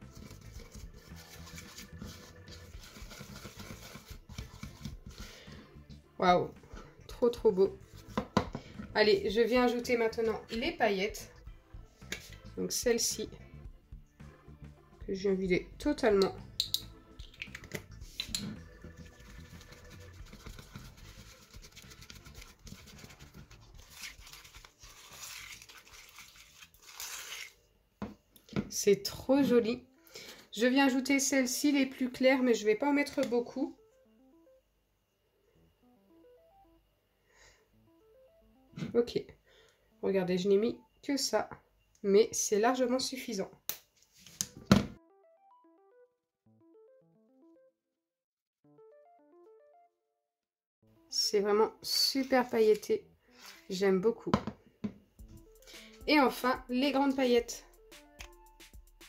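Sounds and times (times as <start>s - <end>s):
spatula scraping glue in a bowl: 0.0s - 5.5s, 18.3s - 27.6s.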